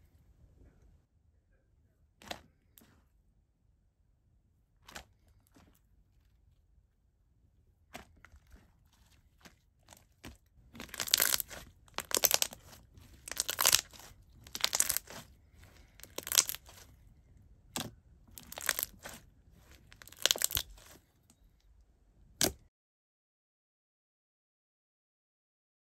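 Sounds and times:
slime squishing: 4.8 - 6.6, 7.8 - 21.4.

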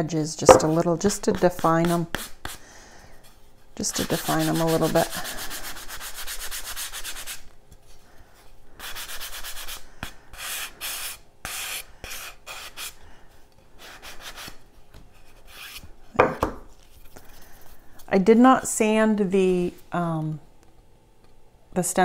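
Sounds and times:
sanding sponge rubbing wood: 4.0 - 7.4.

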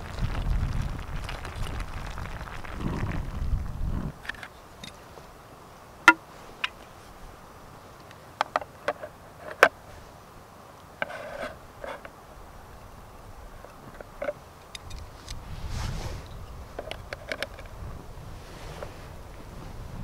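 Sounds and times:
metal scrape: 11.0 - 12.1.

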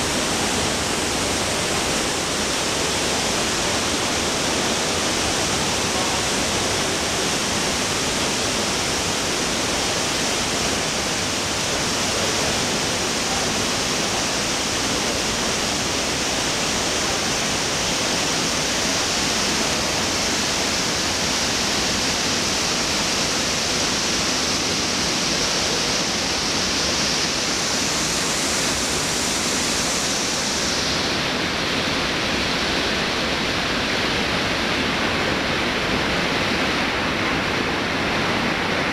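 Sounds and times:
river rushing over boulders: 0.0 - 38.9.

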